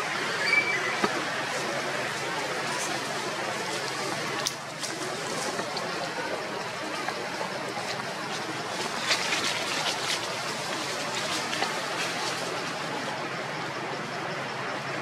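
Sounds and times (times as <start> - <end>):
footsteps crunching through dry leaves: 7.6 - 13.0.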